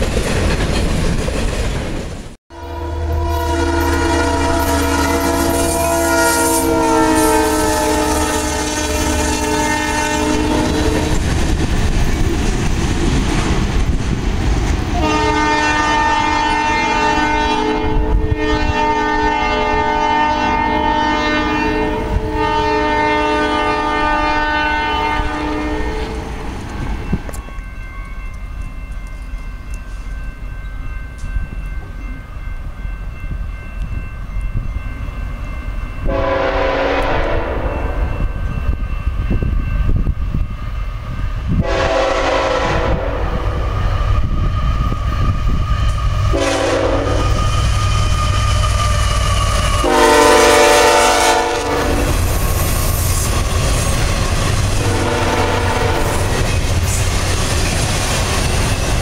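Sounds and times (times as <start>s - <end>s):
rail cars clacking on track: 0.0s - 2.4s, 3.1s - 17.1s, 25.9s - 59.0s
locomotive air horn: 2.5s - 11.2s, 15.0s - 26.3s, 36.0s - 38.1s, 41.6s - 43.9s, 46.3s - 52.2s, 54.8s - 56.4s
crossing warning bell ringing: 2.5s - 12.2s, 15.0s - 59.0s.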